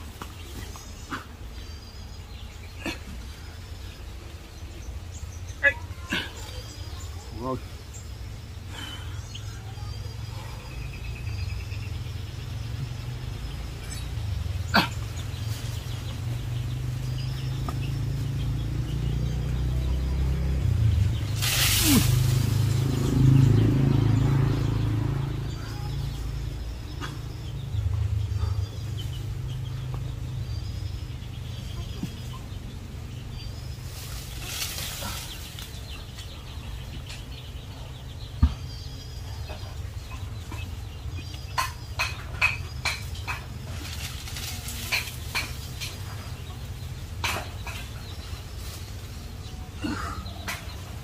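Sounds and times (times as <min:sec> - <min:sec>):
small birds chirping: 0:00.0 - 0:51.0
chickens clucking: 0:31.0 - 0:51.0.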